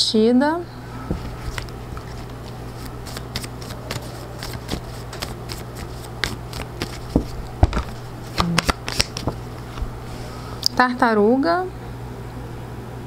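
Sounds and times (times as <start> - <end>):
low steady hum: 0.0 - 13.0
cards being shuffled by hand: 1.1 - 10.0.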